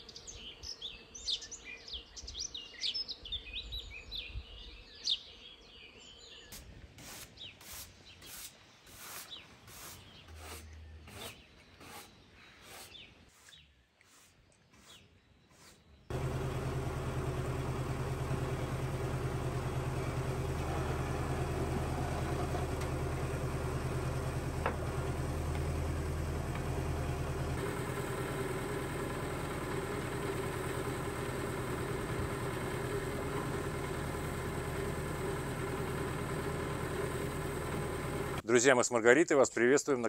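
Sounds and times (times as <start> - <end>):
diesel engine running: 16.1 - 38.4.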